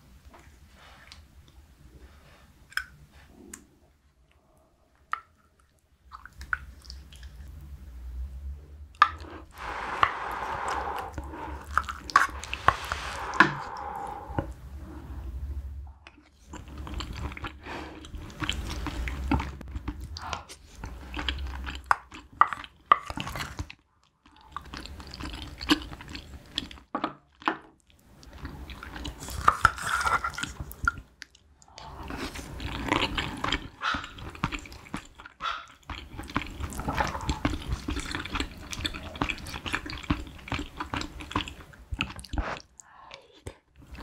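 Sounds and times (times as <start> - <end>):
slurping broth from a spoon: 9.1 - 15.6
moist chewing: 16.0 - 26.8, 27.8 - 44.0.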